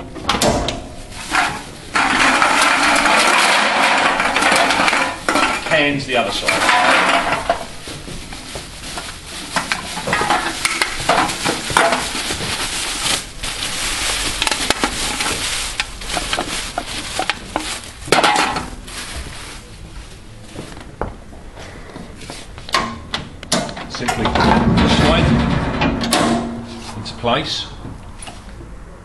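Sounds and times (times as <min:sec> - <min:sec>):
aluminium cans clattering: 0:01.3 - 0:07.7, 0:09.5 - 0:12.6, 0:14.4 - 0:18.9.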